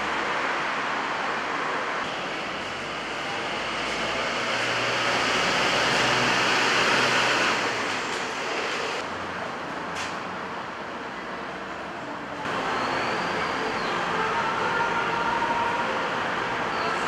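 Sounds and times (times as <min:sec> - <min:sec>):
vehicle passing: 0:00.0 - 0:09.0.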